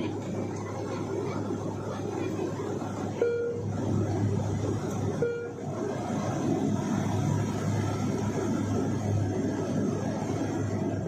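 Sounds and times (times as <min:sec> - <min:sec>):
airliner cabin drone: 0:00.0 - 0:11.0
short beeps: 0:03.2 - 0:03.7, 0:05.2 - 0:05.6.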